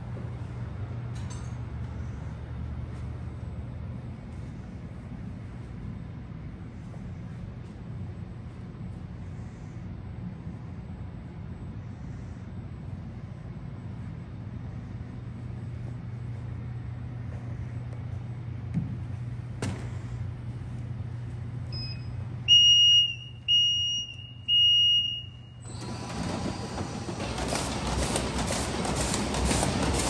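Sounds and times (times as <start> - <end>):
machine humming: 20.3 - 30.0
warning beeps: 21.7 - 25.6
conveyor whirring and clattering: 25.6 - 30.0.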